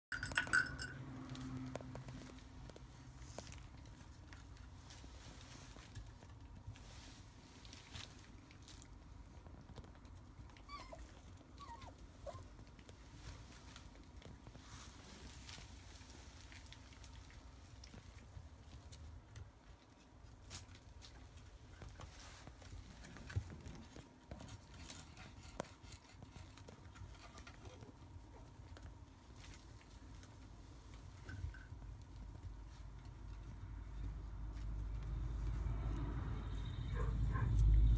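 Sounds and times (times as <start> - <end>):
puppy paws pattering: 1.3 - 35.8
puppy whimpers: 10.5 - 12.6.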